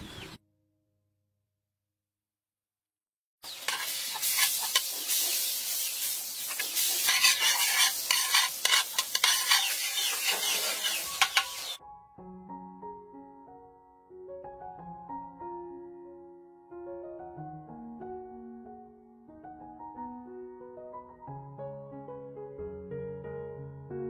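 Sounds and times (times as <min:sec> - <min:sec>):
hot oil sizzling in a wok: 0:03.4 - 0:11.8
metal utensil scraping a pan: 0:03.5 - 0:11.8.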